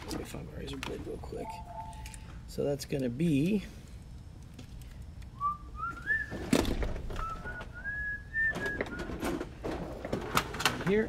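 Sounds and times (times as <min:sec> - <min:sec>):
man whistling a tune: 0:05.4 - 0:06.4, 0:07.2 - 0:09.3.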